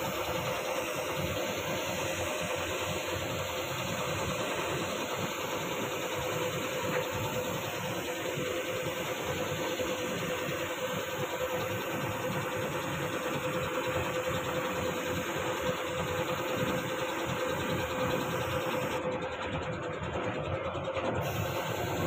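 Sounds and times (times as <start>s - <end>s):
air compressor motor drone: 0.0s - 22.0s.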